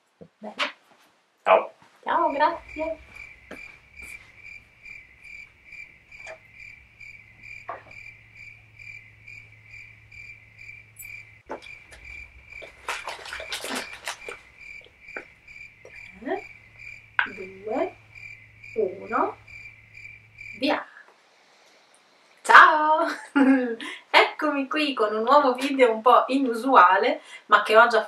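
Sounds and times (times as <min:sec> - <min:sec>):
cricket chirping: 0:02.2 - 0:22.4
rustling and knocks: 0:02.6 - 0:08.2, 0:11.0 - 0:16.1.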